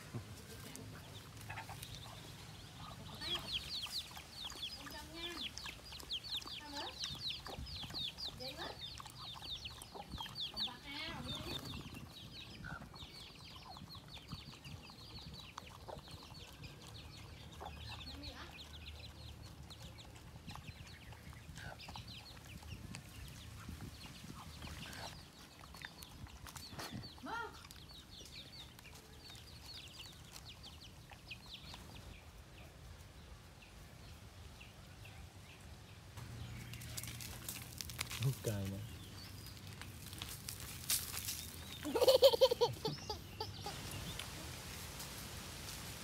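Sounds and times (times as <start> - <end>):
chickens clucking: 0.0 - 32.2, 41.3 - 44.6.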